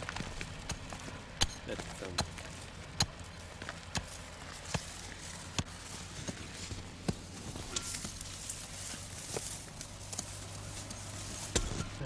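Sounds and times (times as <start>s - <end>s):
hammer striking rock: 0.2s - 4.9s, 11.5s - 12.0s.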